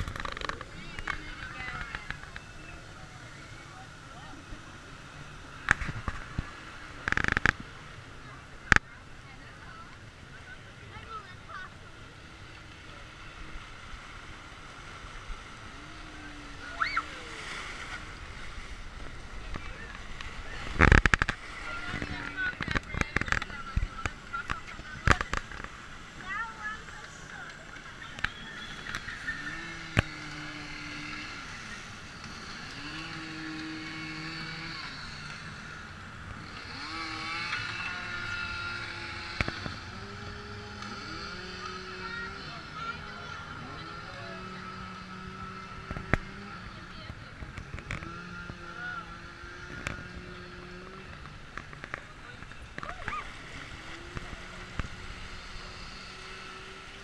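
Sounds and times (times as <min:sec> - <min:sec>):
rushing water: 0:00.0 - 0:44.4, 0:48.6 - 0:57.0
chainsaw revving: 0:28.8 - 0:52.0, 0:52.7 - 0:57.0.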